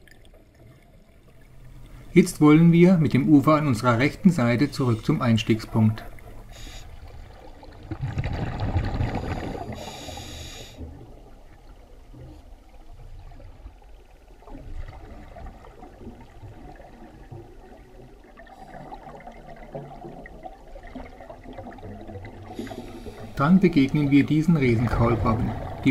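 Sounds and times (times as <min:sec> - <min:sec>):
exhaled bubbles underwater: 0:00.0 - 0:25.9
scuba regulator hiss: 0:06.5 - 0:07.0, 0:09.2 - 0:10.8, 0:22.6 - 0:23.4.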